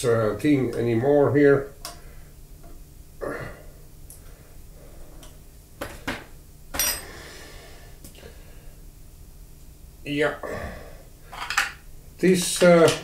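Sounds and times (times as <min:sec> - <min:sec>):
metallic clink with ring: 0:06.8 - 0:07.1.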